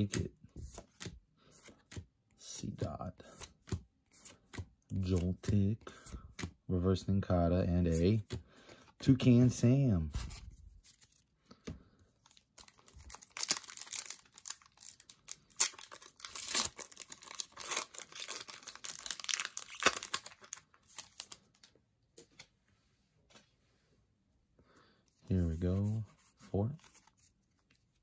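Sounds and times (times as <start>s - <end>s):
foil wrapper crinkling and tearing: 12.3s - 21.6s.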